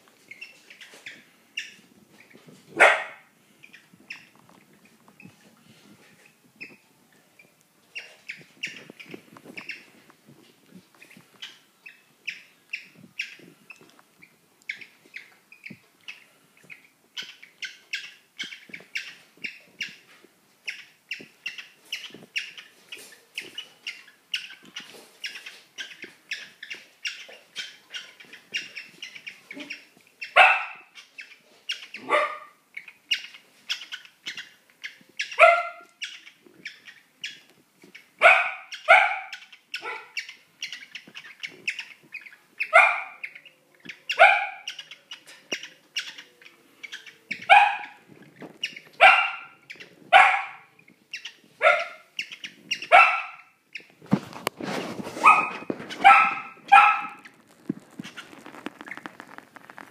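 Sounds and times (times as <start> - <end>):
rustling: 0.0 - 11.8, 18.4 - 32.2, 53.8 - 59.9
cockatiels harsh calls: 20.7 - 53.9.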